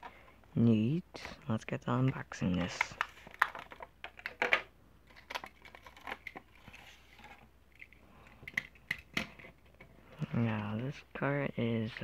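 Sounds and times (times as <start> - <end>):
plastic packaging crinkling: 2.6 - 8.0.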